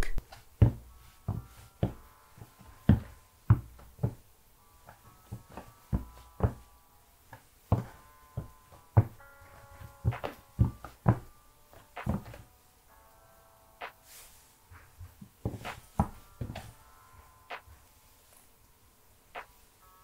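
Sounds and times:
footsteps on wooden floorboards: 0.6s - 4.2s, 4.9s - 6.7s, 7.3s - 12.5s, 14.8s - 16.8s.

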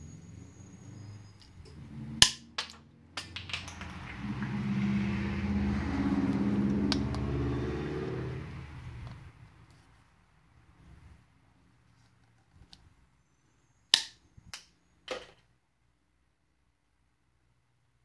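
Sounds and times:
low hum: 0.0s - 9.4s
tube cutter snapping shut: 2.2s - 2.8s.

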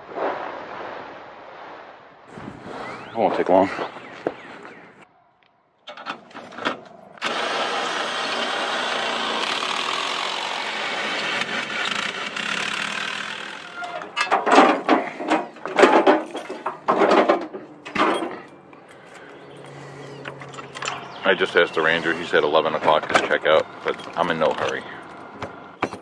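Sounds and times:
small motor running: 7.2s - 13.8s
irregular knocks and clatters: 14.2s - 18.5s.

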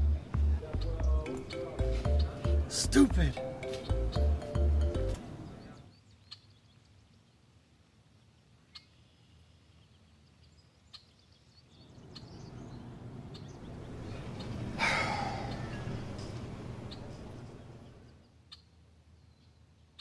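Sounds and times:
outdoor background noise: 0.0s - 20.0s
bird short call: 14.4s - 17.1s.

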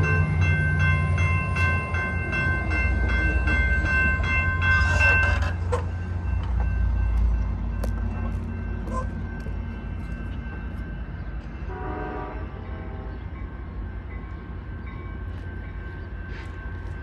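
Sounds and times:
bell ringing: 0.0s - 12.0s
train rumbling: 0.0s - 17.0s
locomotive air horn blast: 11.7s - 13.1s.

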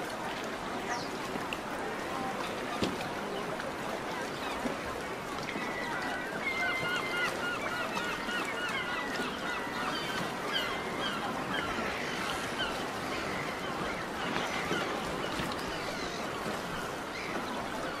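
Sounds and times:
flock of birds calling: 5.5s - 18.0s.

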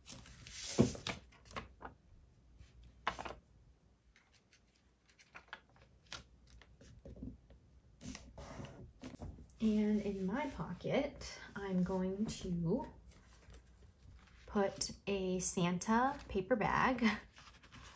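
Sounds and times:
paper rustling: 0.0s - 2.0s, 3.0s - 3.4s, 4.2s - 7.0s, 11.7s - 14.8s, 17.3s - 17.9s.

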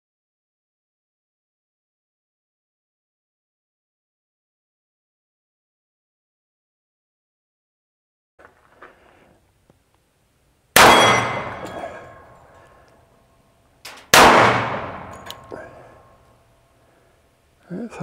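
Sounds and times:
pistol shots with metallic ring: 10.8s - 12.8s, 13.9s - 16.2s.

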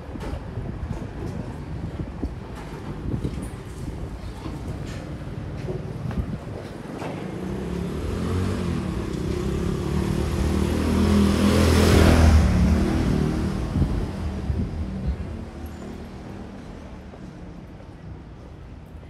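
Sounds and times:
motorbike engine passing by: 7.4s - 14.8s.

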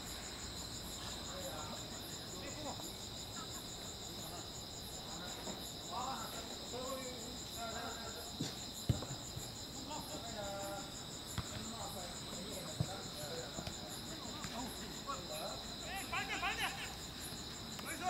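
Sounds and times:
crickets chirring: 0.0s - 18.0s.

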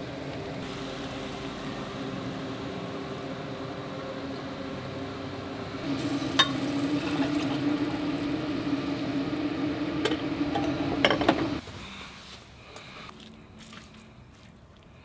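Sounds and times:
steady hum: 0.0s - 13.1s.

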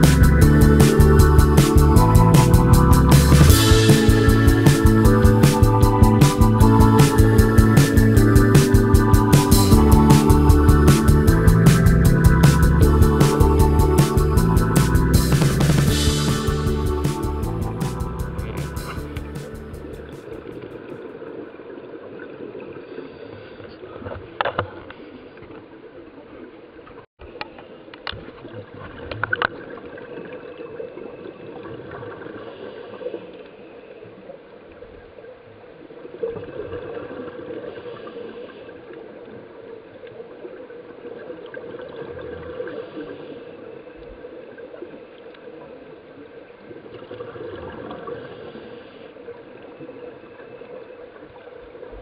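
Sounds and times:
underwater bubbles gurgling: 36.0s - 52.0s.

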